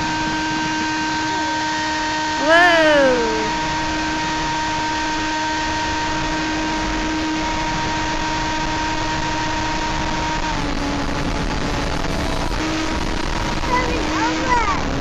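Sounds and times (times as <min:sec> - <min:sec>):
model plane motor and propeller: 0:04.1 - 0:15.0.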